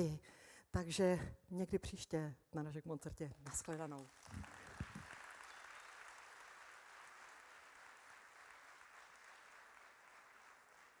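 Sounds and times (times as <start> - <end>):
faint audience applause: 3.5 - 11.0.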